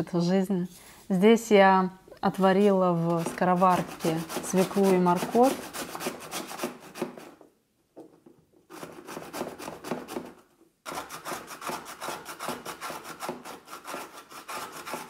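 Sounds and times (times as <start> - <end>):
vegetable grating on plastic grater: 2.4 - 7.4, 8.7 - 15.0.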